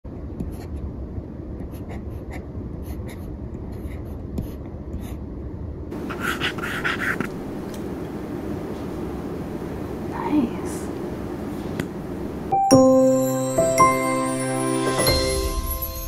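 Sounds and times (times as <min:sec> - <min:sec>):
stylus scratching on screen: 0:01.6 - 0:05.2, 0:05.9 - 0:07.6.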